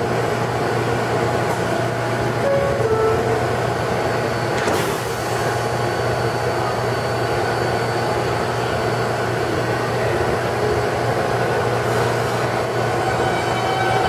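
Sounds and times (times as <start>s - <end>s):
train equipment humming: 0.0s - 14.0s
train doors sliding shut: 4.5s - 5.5s.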